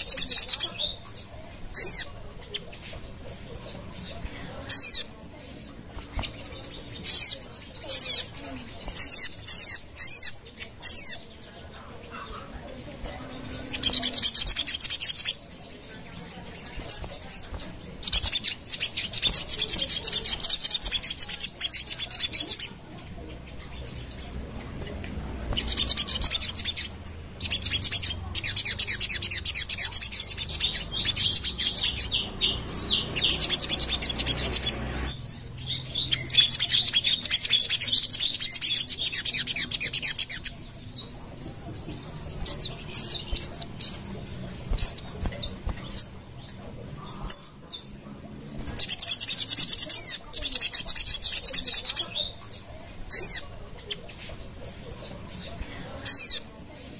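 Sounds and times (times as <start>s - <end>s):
sunbird chattering trills: 0.0s - 2.7s, 3.3s - 12.6s, 13.2s - 54.1s, 54.7s - 56.5s
bird chirps: 0.0s - 56.9s.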